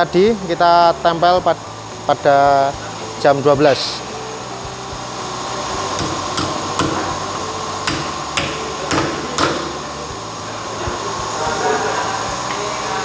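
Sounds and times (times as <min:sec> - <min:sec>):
steady background hum: 0:00.0 - 0:13.0
hammer tapping on metal: 0:06.0 - 0:07.2, 0:07.8 - 0:09.8.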